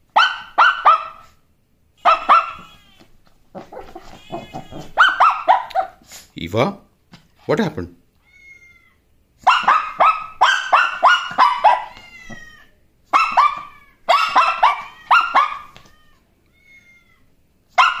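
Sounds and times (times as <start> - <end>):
small dog yapping: 0.1 - 1.4, 2.0 - 6.1, 9.4 - 18.0.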